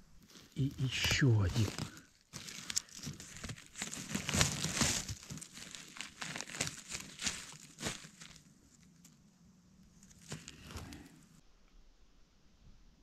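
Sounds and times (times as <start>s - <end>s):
dry leaves rustling and crackling: 0.2s - 9.2s, 10.0s - 11.4s
twigs snapping: 0.3s - 9.2s, 9.9s - 11.2s.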